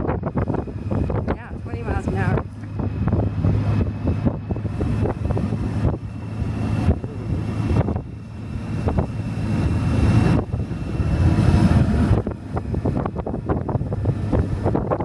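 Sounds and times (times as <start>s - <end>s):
motorcycle engine: 0.0s - 15.0s
wind buffeting microphone: 0.0s - 15.0s.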